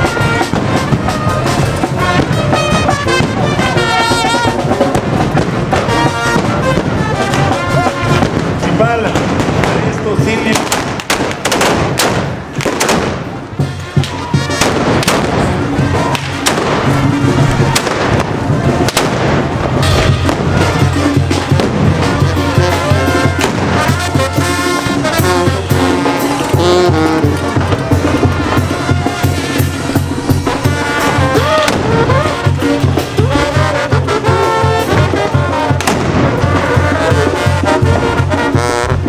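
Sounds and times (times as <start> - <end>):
brass band playing: 0.0 - 39.0
sharp loud bangs: 4.6 - 22.3, 23.2 - 25.1, 27.2 - 34.2, 34.9 - 36.7.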